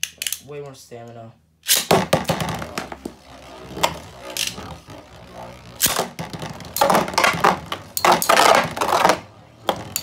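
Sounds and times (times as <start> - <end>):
spinning top launch crack: 1.6 - 9.1.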